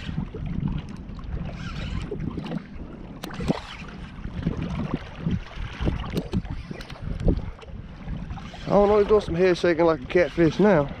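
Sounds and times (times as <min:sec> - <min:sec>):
water lapping against boat hull: 0:00.0 - 0:11.0
wind on microphone: 0:00.0 - 0:11.0.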